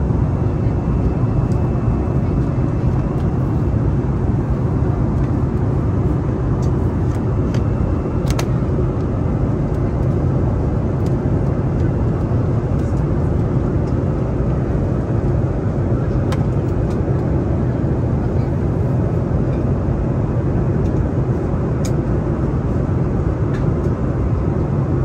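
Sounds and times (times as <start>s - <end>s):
aircraft cabin roar: 0.0s - 25.0s.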